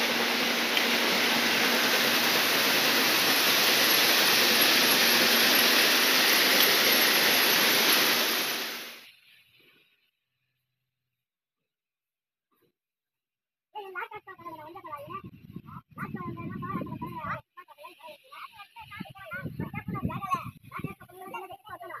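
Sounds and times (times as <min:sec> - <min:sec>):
crusher and conveyor machinery rushing: 0:00.0 - 0:09.0.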